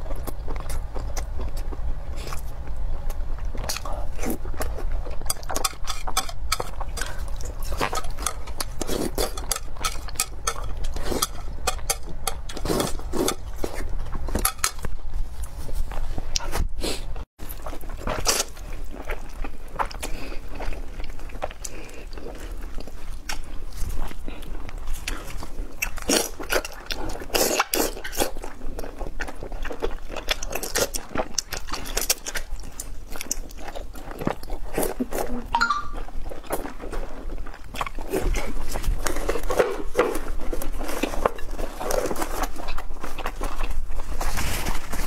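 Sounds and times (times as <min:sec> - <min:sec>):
wet chewing and mouth smacks: 0:17.5 - 0:44.1.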